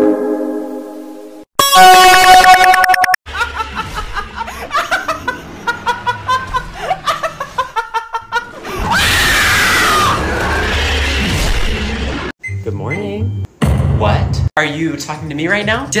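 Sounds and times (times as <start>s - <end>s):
young man laughing: 3.3s - 8.7s
loud drawn-out scream: 8.6s - 12.2s.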